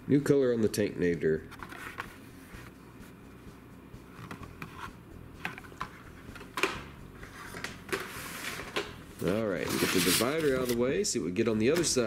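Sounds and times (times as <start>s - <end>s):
cardboard rubbing slide: 7.2s - 8.8s, 9.6s - 10.8s.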